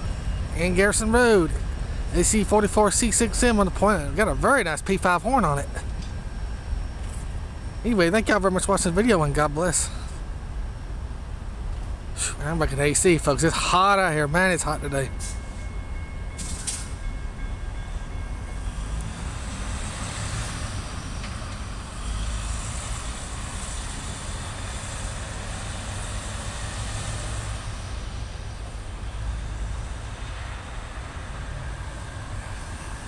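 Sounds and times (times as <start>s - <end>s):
hiss of passing traffic: 0.0s - 17.0s, 18.6s - 33.0s
steady low rumble: 0.0s - 19.8s
vehicles driving across railroad crossing: 0.0s - 33.0s.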